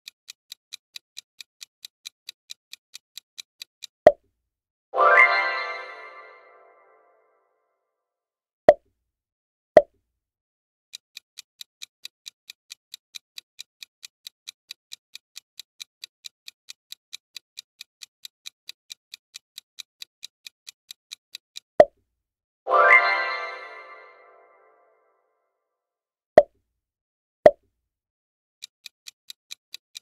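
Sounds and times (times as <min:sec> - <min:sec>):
clock ticking countdown effect: 0:05.0 - 0:07.3, 0:22.7 - 0:25.0, 0:28.6 - 0:30.0.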